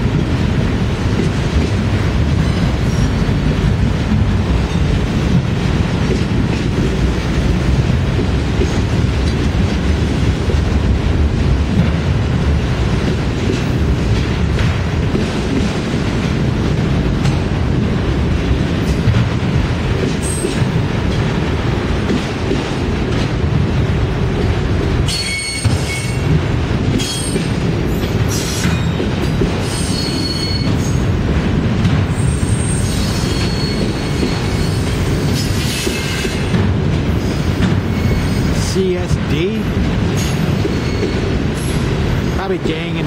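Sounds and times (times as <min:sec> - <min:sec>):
freight train wheels rumbling: 0:00.0 - 0:43.0
high-pitched wheel squeal: 0:25.1 - 0:26.2, 0:29.7 - 0:30.8, 0:32.2 - 0:34.9.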